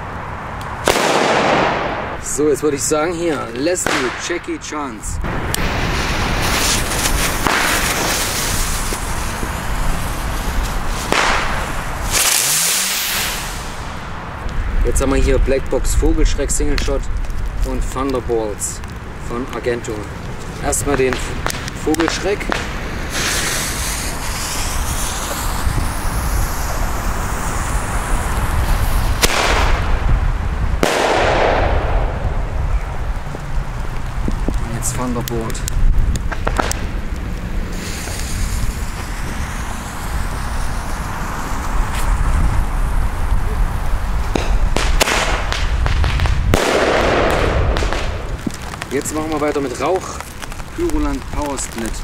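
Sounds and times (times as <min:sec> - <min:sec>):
firecracker crack: 0:00.0 - 0:52.0
wind noise on microphone: 0:00.0 - 0:52.0
sharp bangs with echo: 0:00.8 - 0:02.2, 0:03.8 - 0:04.6, 0:30.8 - 0:32.4, 0:44.3 - 0:48.3
firecracker fuses hissing: 0:05.2 - 0:52.0
firework whistle rising in pitch: 0:11.2 - 0:13.9, 0:37.7 - 0:43.0.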